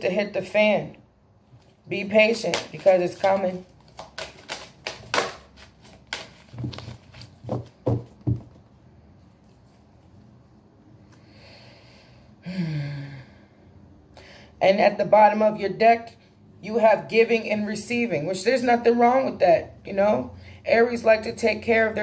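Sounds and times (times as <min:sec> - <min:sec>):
cards shuffling clicks: 0:01.6 - 0:08.1.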